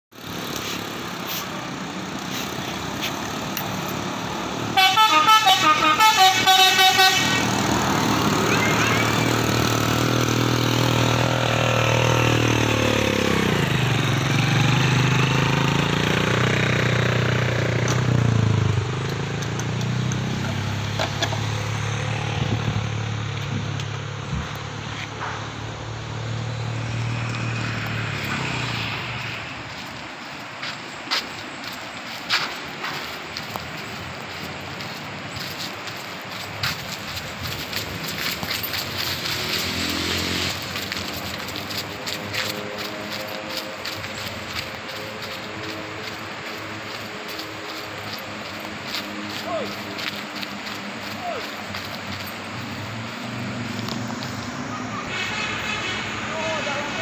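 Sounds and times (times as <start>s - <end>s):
steady engine drone: 0.1s - 31.0s, 32.5s - 57.0s
heavy vehicle engine passing: 0.2s - 57.0s
musical air horn pulsed notes: 4.7s - 7.6s, 54.7s - 56.4s.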